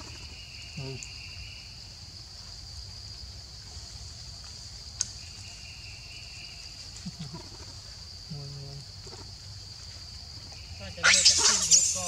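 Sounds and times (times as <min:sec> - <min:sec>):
insects chorus: 0:00.0 - 0:12.0.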